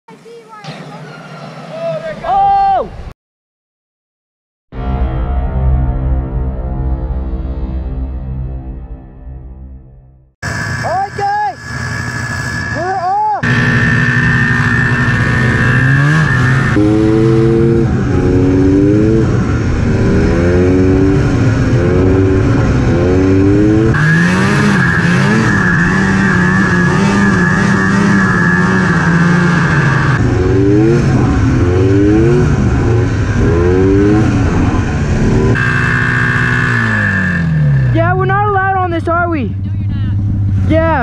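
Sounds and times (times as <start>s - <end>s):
steady high whine: 10.4s - 38.1s
snowmobile engine revving: 10.4s - 41.0s.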